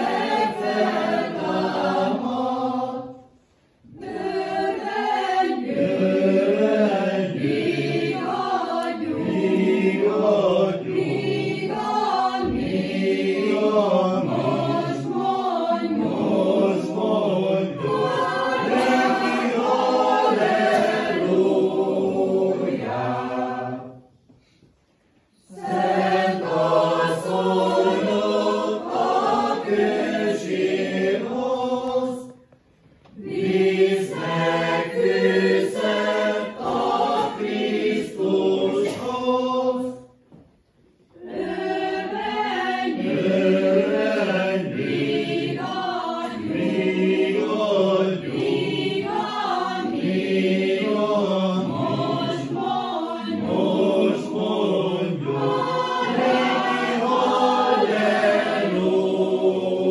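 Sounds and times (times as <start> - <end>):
mixed choir singing: 0.0 - 24.4, 25.2 - 40.3, 41.1 - 59.9.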